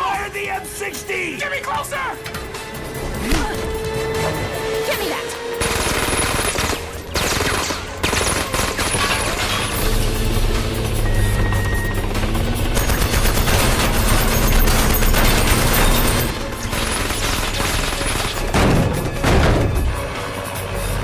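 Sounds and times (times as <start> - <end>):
film score music: 0.0 - 21.0
automatic gunfire: 5.6 - 9.4, 12.7 - 18.8.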